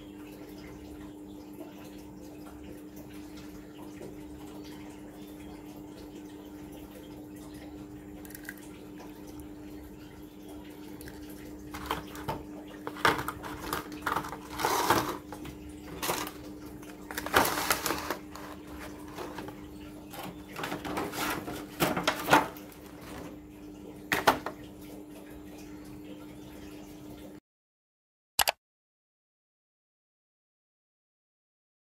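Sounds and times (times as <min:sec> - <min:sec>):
plastic clicks and crinkles: 0:11.7 - 0:23.2.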